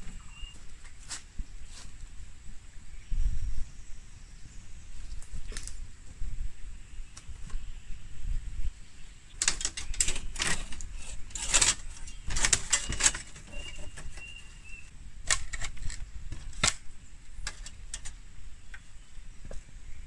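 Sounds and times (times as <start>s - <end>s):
bamboo rustling scrapes: 9.4s - 14.7s.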